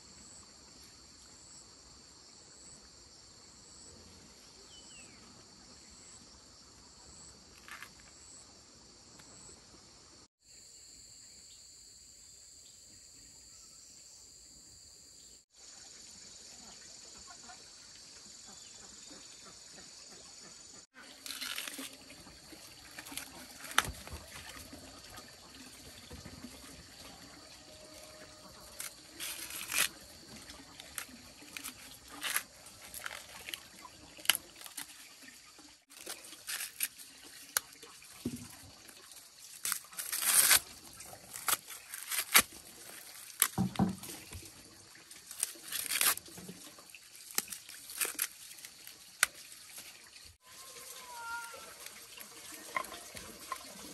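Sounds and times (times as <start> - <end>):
water splashing and trickling: 20.9 - 53.9.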